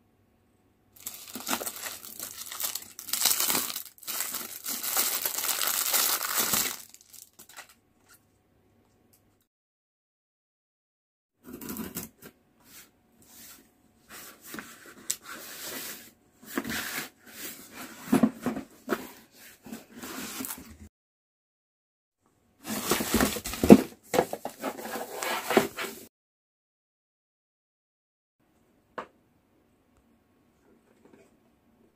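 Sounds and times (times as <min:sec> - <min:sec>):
plastic bag crinkling: 0:01.0 - 0:07.7
cardboard box scraping and rustling: 0:22.6 - 0:26.1.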